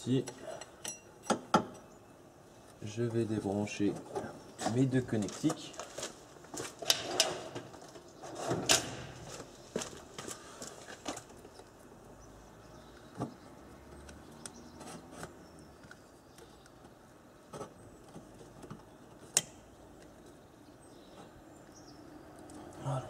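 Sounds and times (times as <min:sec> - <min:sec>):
clicks of electrical connectors: 0:18.6 - 0:20.2.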